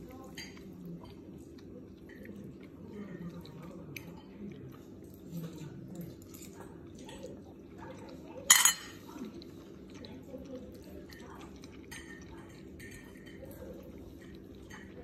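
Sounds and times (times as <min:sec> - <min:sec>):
cutlery clinking on a plate: 0:08.5 - 0:09.0.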